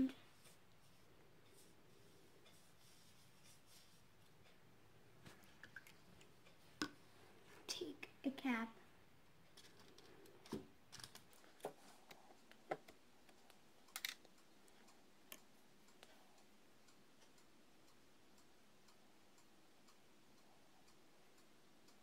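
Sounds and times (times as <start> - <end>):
faint ticking: 0.0 - 22.0.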